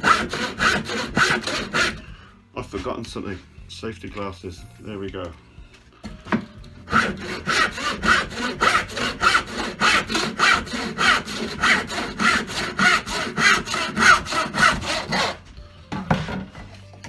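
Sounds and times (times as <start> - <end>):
hand saw cutting wood: 0.0 - 2.1, 6.8 - 16.5.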